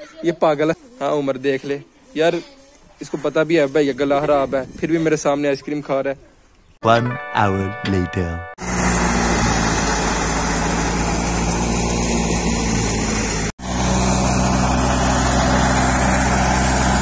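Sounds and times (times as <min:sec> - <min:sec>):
thresher and tractor running: 0:08.6 - 0:17.0.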